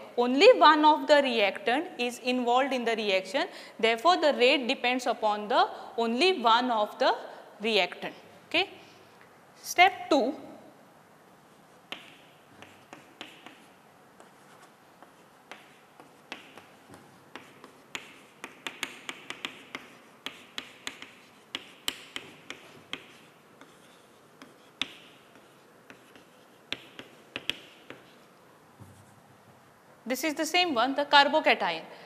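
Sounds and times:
chalk on chalkboard: 0:11.5 - 0:29.2.

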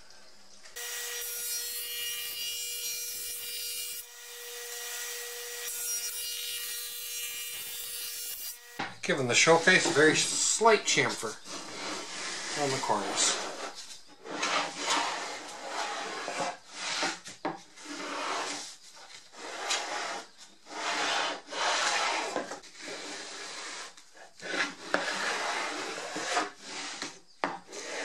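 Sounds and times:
hand tool rasping on wood: 0:11.5 - 0:17.2, 0:19.3 - 0:28.0.

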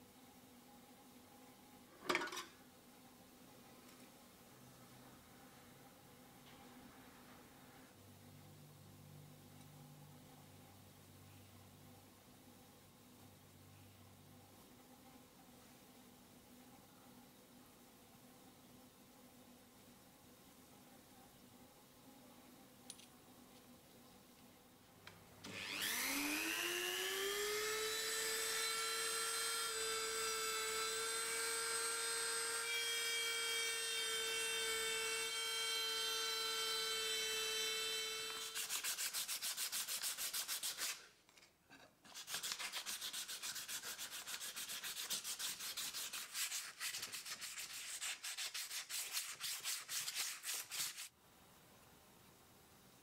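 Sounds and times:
small electric motor whining: 0:25.4 - 0:38.8
sandpaper rasping on metal: 0:38.3 - 0:41.1, 0:42.1 - 0:51.1.

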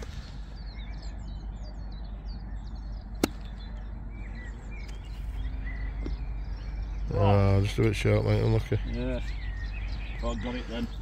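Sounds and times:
birds chirping: 0:00.0 - 0:11.0
golf club striking ball: 0:03.2 - 0:03.5.

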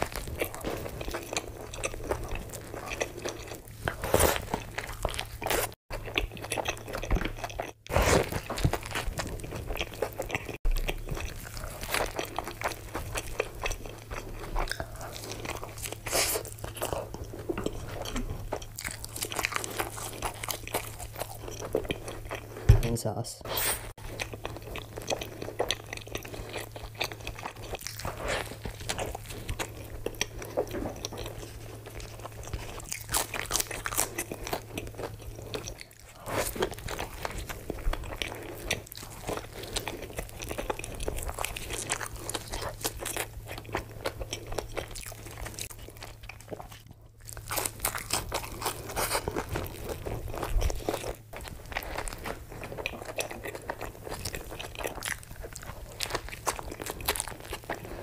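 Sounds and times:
chewing with wet mouth sounds: 0:00.0 - 0:23.0, 0:23.9 - 0:58.0
crunching bites: 0:32.1 - 0:58.0.

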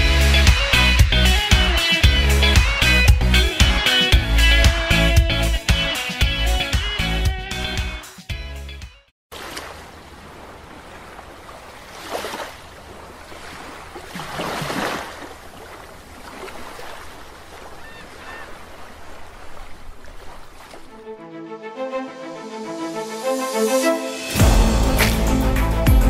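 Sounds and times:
waves breaking: 0:09.3 - 0:21.2.

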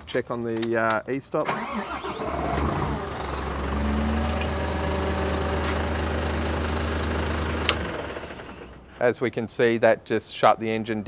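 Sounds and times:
diesel engine idling: 0:01.5 - 0:09.0
engine running down: 0:02.0 - 0:08.9.

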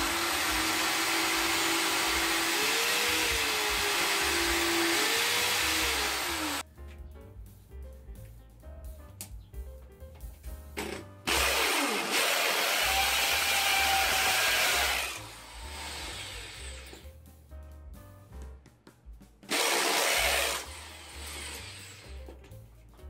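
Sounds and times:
hammer drill boring into brick: 0:00.0 - 0:06.6, 0:11.3 - 0:17.0, 0:19.5 - 0:22.1.

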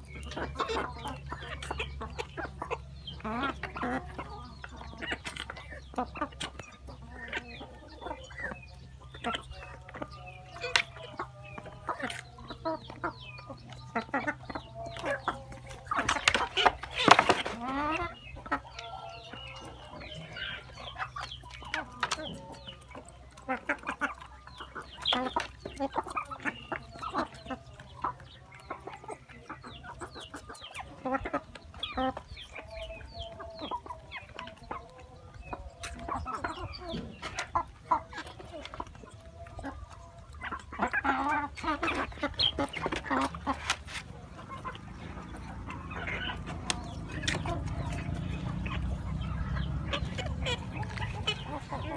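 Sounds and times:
hens and roosters clucking: 0:00.0 - 0:51.9.

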